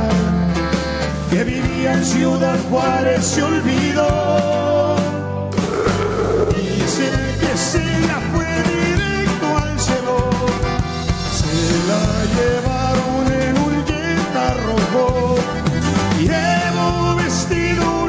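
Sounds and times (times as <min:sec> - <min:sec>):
bass: 0:00.0 - 0:18.0
accordion melody: 0:00.1 - 0:01.5, 0:10.6 - 0:17.9
bajo sexto: 0:05.5 - 0:09.4
congas: 0:05.5 - 0:09.7
drum kit: 0:05.5 - 0:18.0.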